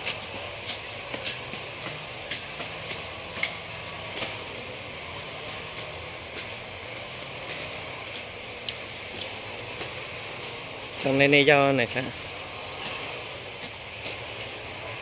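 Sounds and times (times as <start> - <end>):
steady background hiss: 0.0 - 15.0
plant stems snapping and crackling: 5.7 - 11.2.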